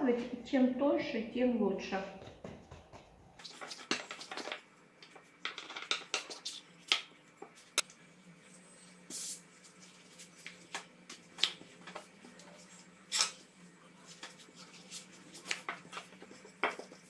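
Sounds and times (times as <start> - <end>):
faint steady hum: 0.0 - 17.0
rolling pin tapping and swishing: 2.2 - 4.6.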